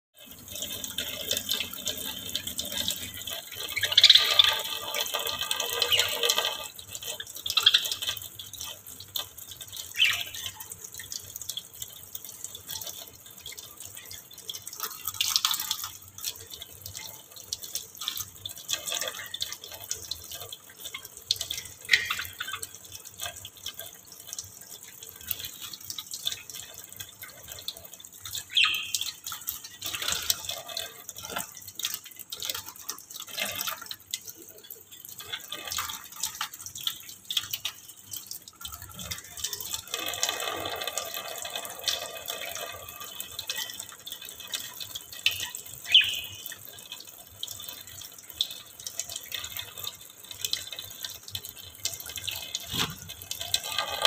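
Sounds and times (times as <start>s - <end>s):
water splattering into sink: 51.9s - 54.0s.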